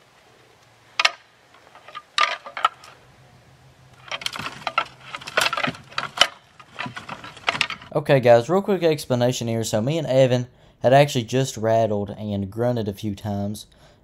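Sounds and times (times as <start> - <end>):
hard objects clicking together: 4.0 - 7.9.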